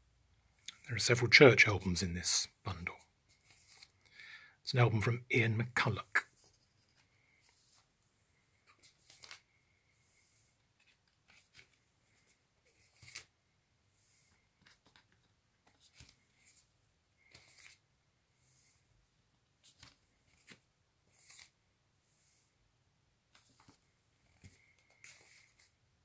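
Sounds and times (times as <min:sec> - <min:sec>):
cardboard sleeves rustling and tapping: 0:14.3 - 0:17.8, 0:23.3 - 0:25.8.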